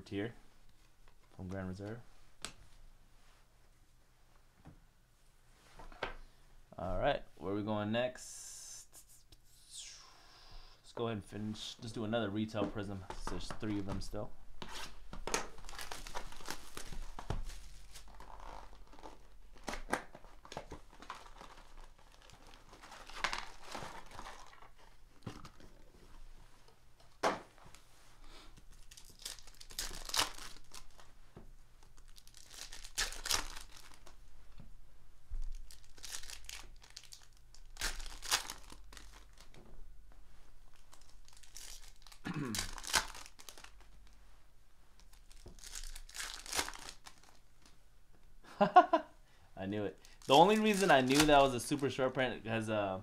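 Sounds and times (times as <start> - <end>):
foil packs tearing and crinkling: 15.4 - 24.8, 28.7 - 31.0, 32.0 - 34.1, 35.6 - 39.6, 40.7 - 43.8, 45.1 - 47.4, 50.1 - 51.8.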